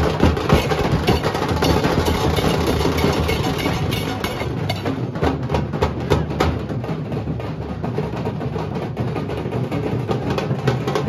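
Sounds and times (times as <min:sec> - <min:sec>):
barrel drums beaten with sticks: 0:00.0 - 0:11.0
hand cymbals clashing: 0:00.6 - 0:04.9.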